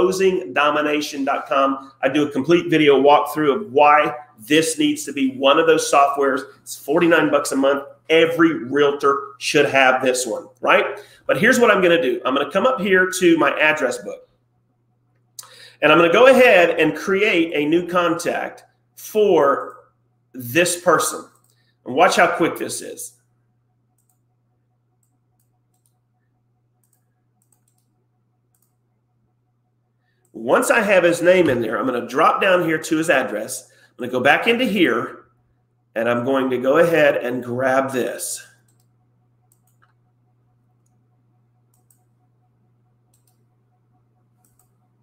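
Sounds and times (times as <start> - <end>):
low steady hum: 0.0 - 45.0
computer mouse clicks: 21.3 - 21.6, 24.0 - 24.2, 25.0 - 26.0, 26.8 - 28.8, 38.6 - 38.9, 39.5 - 40.0, 41.7 - 42.1, 43.1 - 43.4, 44.4 - 44.9
keyboard and mouse clicks: 26.8 - 27.9, 28.5 - 28.8, 41.7 - 42.1, 43.1 - 43.4, 44.4 - 44.8.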